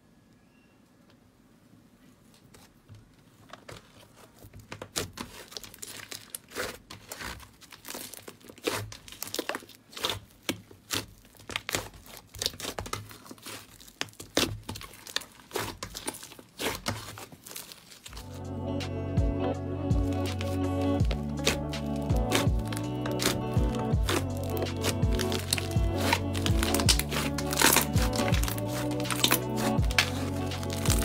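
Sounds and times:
slime crackling and popping: 4.7 - 18.3, 20.0 - 31.0.

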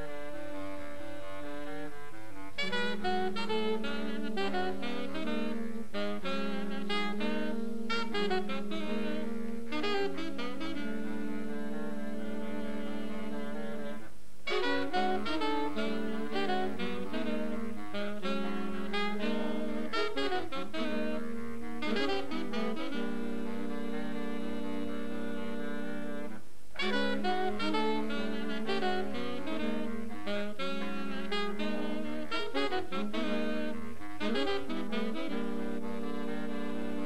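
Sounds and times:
saxophone ensemble playing jazz: 0.0 - 37.0.

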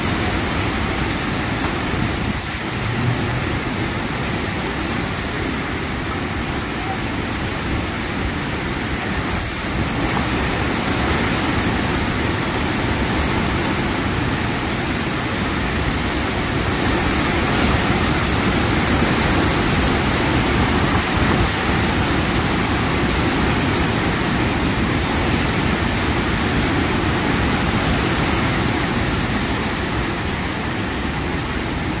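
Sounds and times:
heavy rain: 0.0 - 32.0
wind gusts thrashing trees: 0.0 - 32.0
wind buffeting microphone: 0.1 - 6.5.

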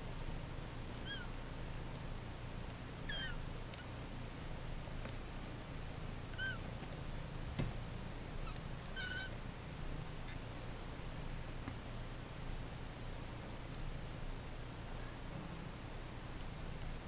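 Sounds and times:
kittens mewing: 1.0 - 1.3, 3.1 - 3.9, 6.4 - 6.7, 8.4 - 9.4.

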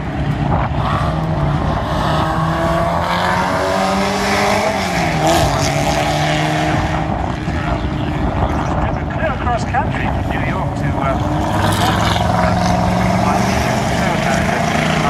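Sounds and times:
racing car engine accelerating: 0.0 - 15.0.

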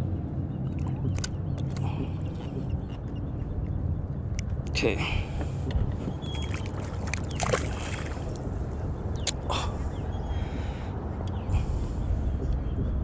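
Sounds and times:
steady low rumble: 0.0 - 13.0
fish thrashing in water: 6.3 - 8.5
water splashing against kayak: 6.3 - 8.6.

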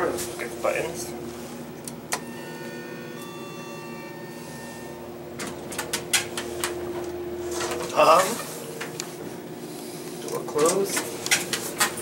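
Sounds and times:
steady hum: 0.0 - 12.0
elevator doors closing: 2.1 - 8.5
faint high tones: 2.2 - 5.2.

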